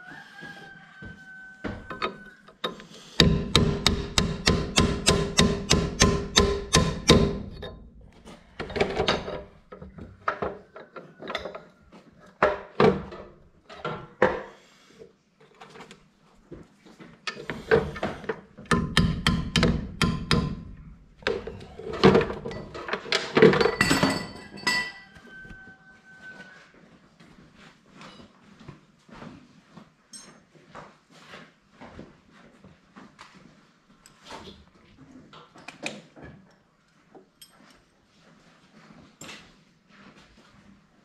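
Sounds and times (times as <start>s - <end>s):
hammer blows on metal: 3.2s - 7.7s.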